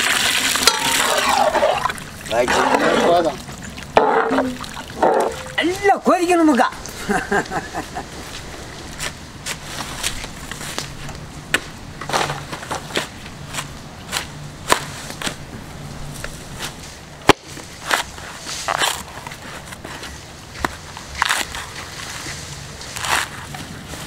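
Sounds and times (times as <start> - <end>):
coconut husk cracking and tearing: 21.0 - 22.1.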